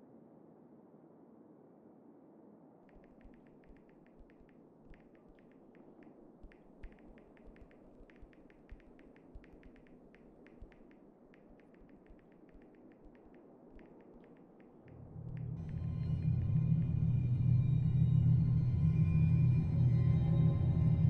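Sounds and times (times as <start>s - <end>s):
touchscreen typing taps: 2.9s - 15.5s
low room hum: 2.9s - 21.0s.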